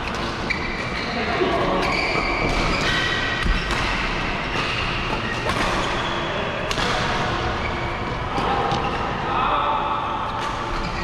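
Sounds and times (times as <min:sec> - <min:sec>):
rackets hitting shuttlecocks: 0:00.0 - 0:06.0, 0:06.6 - 0:07.6
shoes squeaking on court: 0:00.0 - 0:06.3.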